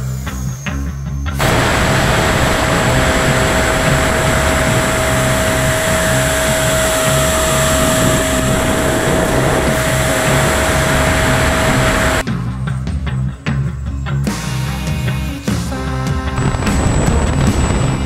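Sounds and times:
wind rush on microphone: 0:01.4 - 0:12.2, 0:16.4 - 0:18.0
electric fan whine: 0:01.4 - 0:12.3.

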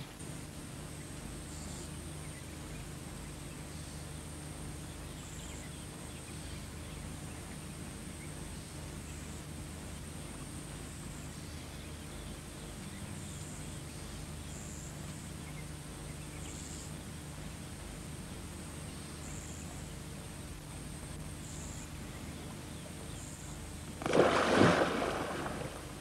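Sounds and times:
insects high drone: 0:00.0 - 0:26.0
steady low hum: 0:00.0 - 0:26.0
insect chirps: 0:20.4 - 0:26.0.

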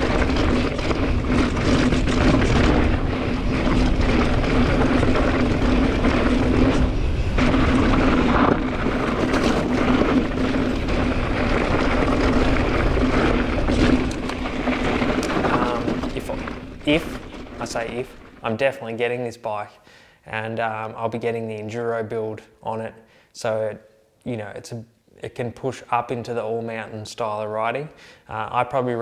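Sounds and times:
bicycle freehub buzzing: 0:00.0 - 0:18.4
wind rumble on microphone: 0:00.0 - 0:18.8.

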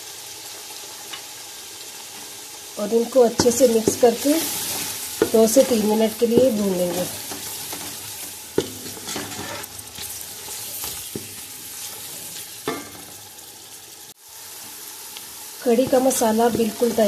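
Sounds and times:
masala sizzling in a pot: 0:00.0 - 0:17.0
spoon scraping a pot: 0:08.6 - 0:12.8.

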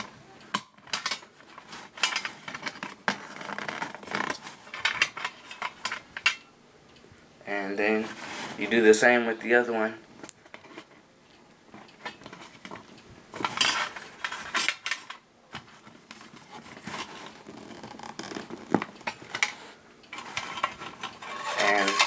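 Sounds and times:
wire scraping tin can: 0:19.2 - 0:22.0.

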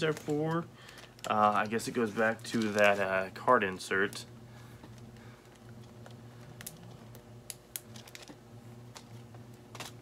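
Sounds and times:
clicks and crinkles of a small bag: 0:00.0 - 0:10.0
low steady hum: 0:00.0 - 0:10.0.

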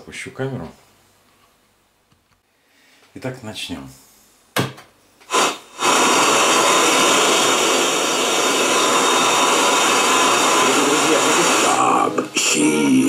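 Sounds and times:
radio static hiss: 0:05.3 - 0:13.0.

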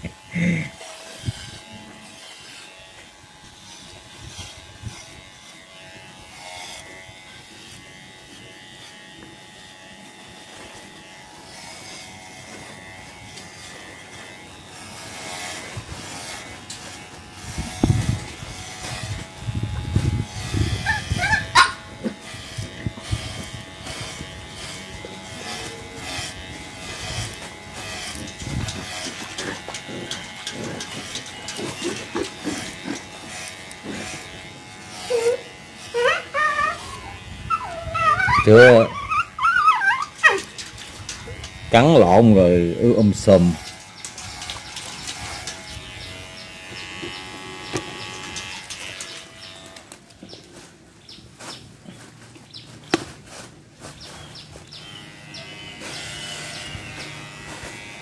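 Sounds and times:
electric clippers humming: 0:00.0 - 0:50.9, 0:51.7 - 0:58.0.

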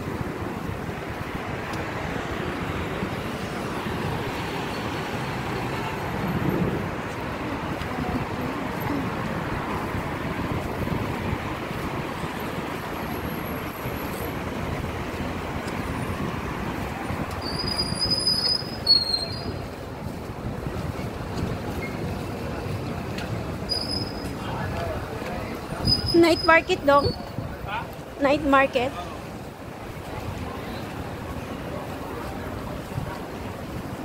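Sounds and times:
road traffic passing: 0:00.0 - 0:34.0.

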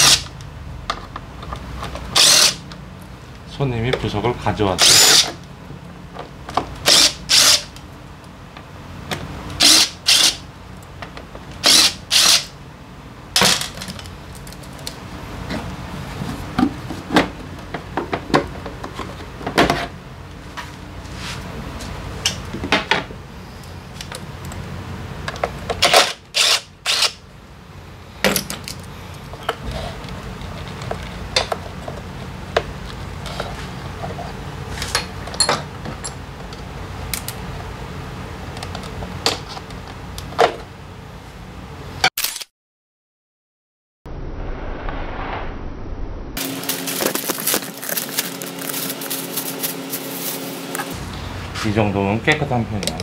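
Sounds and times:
tools and parts clanking: 0:13.4 - 0:15.6, 0:33.3 - 0:36.3
steady low hum: 0:44.1 - 0:53.0.

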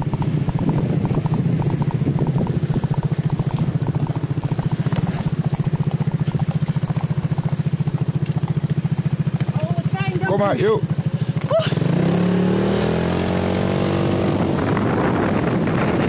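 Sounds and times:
motorcycle engine throbbing: 0:00.0 - 0:16.0.

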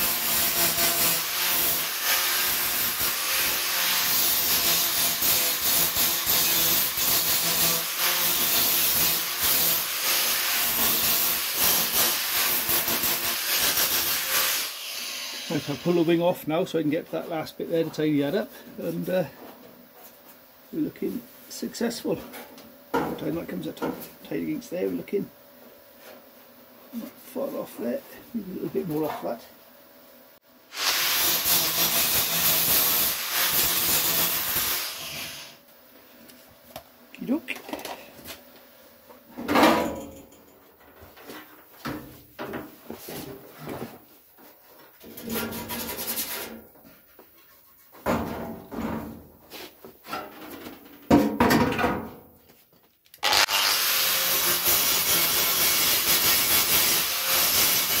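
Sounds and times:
angle grinder grinding metal: 0:00.0 - 0:16.3, 0:30.7 - 0:35.6, 0:53.2 - 0:58.0
grinder motor hum: 0:53.2 - 0:54.6
angle grinder disc on metal: 0:53.2 - 0:58.0.

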